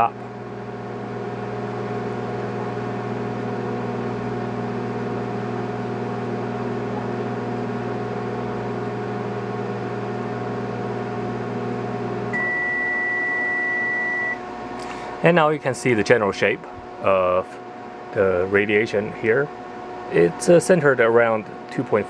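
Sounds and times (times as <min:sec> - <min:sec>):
mains hum: 0:00.0 - 0:22.0
microwave oven running: 0:00.0 - 0:22.0.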